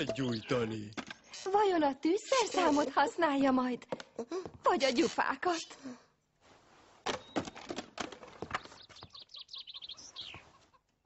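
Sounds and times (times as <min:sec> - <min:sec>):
high chirps: 0:00.0 - 0:00.9.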